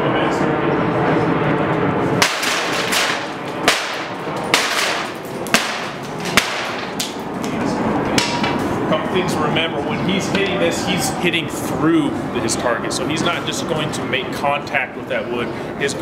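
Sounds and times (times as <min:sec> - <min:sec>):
plywood splintering cracks: 0:02.2 - 0:07.6.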